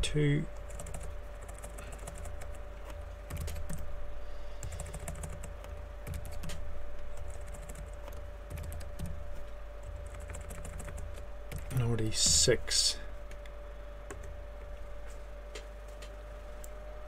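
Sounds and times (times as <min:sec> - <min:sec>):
steady hum: 0:00.0 - 0:17.0
computer keyboard typing: 0:00.6 - 0:03.9, 0:04.6 - 0:06.6, 0:07.2 - 0:09.2, 0:09.8 - 0:12.4, 0:14.1 - 0:14.4.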